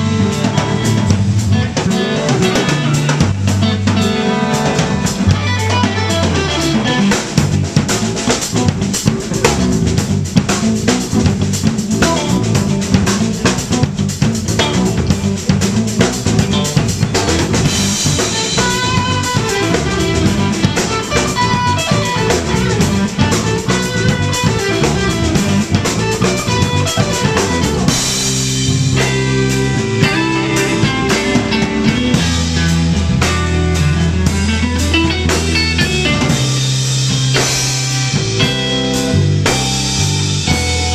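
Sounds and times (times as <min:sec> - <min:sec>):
drum kit: 0:00.0 - 0:40.9
electric bass: 0:00.0 - 0:40.9
electric guitar: 0:00.0 - 0:40.9.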